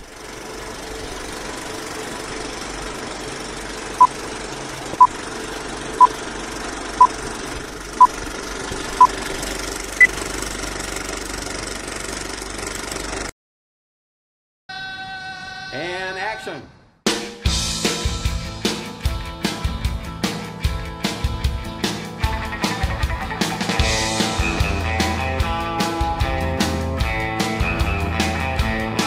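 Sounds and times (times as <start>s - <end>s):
film projector rattle: 0.0s - 13.3s.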